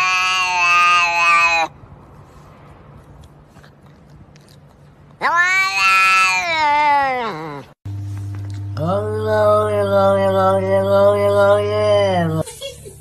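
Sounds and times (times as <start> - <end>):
cat meowing: 0.0 - 1.7, 5.2 - 7.8.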